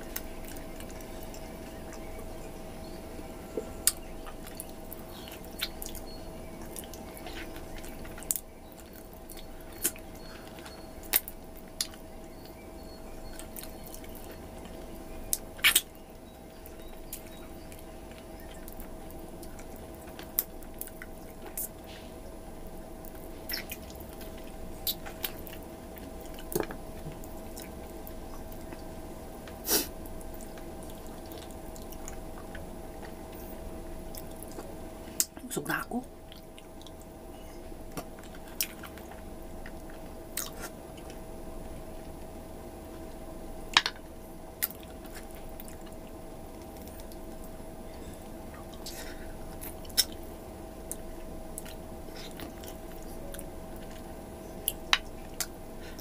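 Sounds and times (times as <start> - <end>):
steady hum: 0.0 - 56.0
wet mouth chewing and sucking: 15.3 - 16.0, 23.1 - 25.6.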